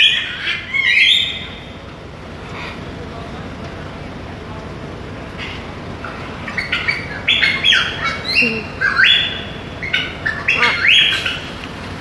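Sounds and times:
macaw squawking: 0.0 - 1.6, 5.4 - 11.6.

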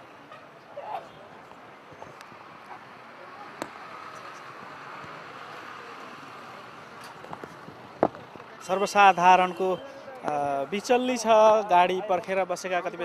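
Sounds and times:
traffic: 0.0 - 13.0
people: 3.1 - 13.0.

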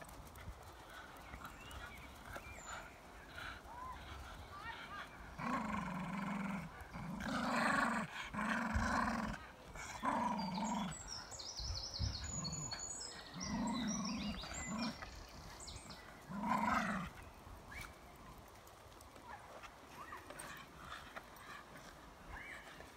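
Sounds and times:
dog growling in play: 5.3 - 11.2, 12.0 - 17.2.

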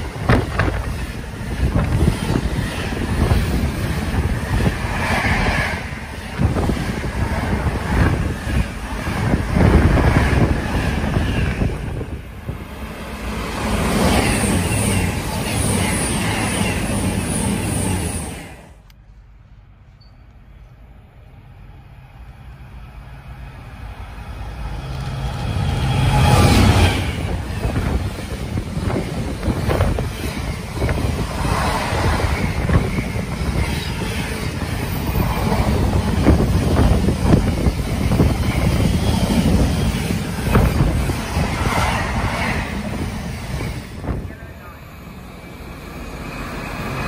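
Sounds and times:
freight train passing: 0.0 - 47.0.

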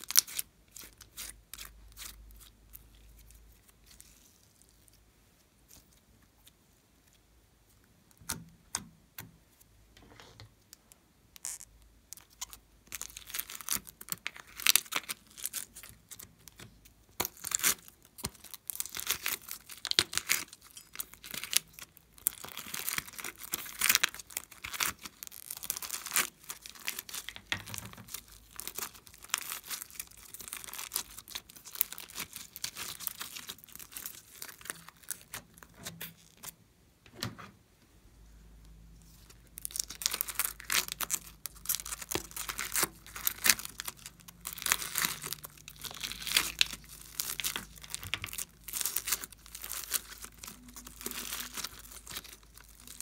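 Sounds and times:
foam beads crackling in slime: 0.0 - 5.0, 11.4 - 36.5, 39.2 - 53.0.

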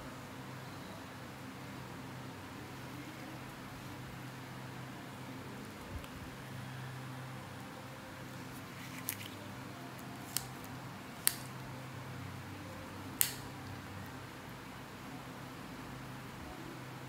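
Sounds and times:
toenail nippers snapping: 11.2 - 11.5, 13.2 - 13.4.

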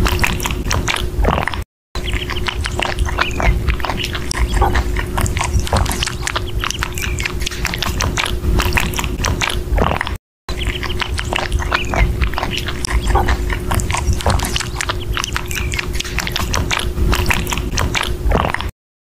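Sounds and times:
rabbit chewing strawberry: 0.0 - 18.7.

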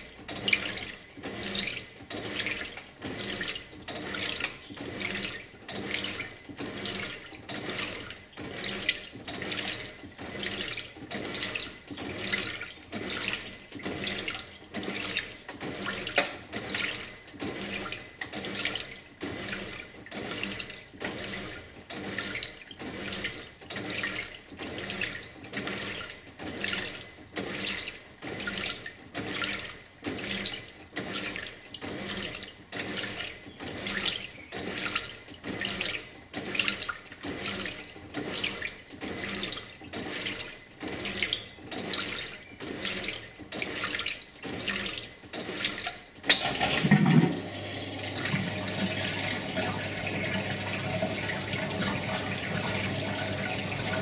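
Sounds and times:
washing machine agitating: 0.0 - 54.0
water sloshing in tub: 0.0 - 54.0.

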